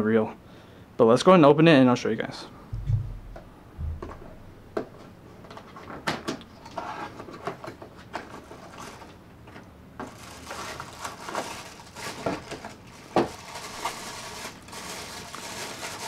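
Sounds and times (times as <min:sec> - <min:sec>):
packaging rustling and crinkling: 0:10.0 - 0:16.0.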